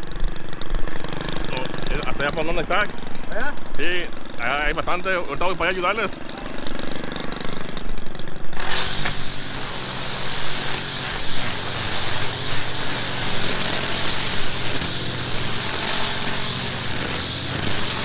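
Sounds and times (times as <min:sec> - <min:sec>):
string trimmer engine drone: 0:00.0 - 0:18.0
trimmer line cutting grass hiss: 0:08.6 - 0:18.0.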